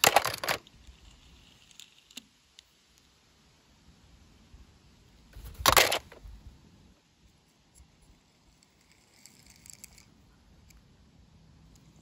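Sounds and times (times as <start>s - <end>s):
toy car clicks: 0.0s - 1.0s, 5.4s - 6.2s.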